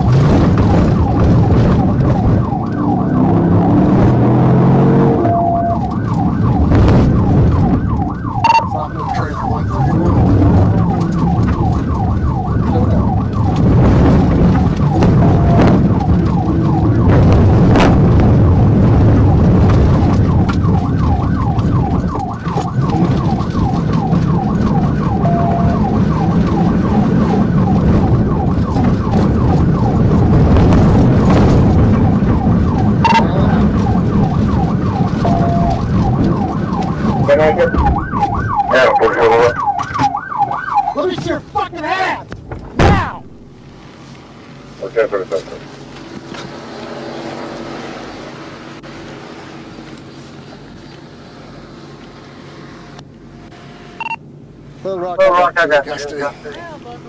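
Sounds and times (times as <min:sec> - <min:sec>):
police siren yelping: 0:00.0 - 0:41.3
car rumbling over rough ground: 0:00.0 - 0:53.4.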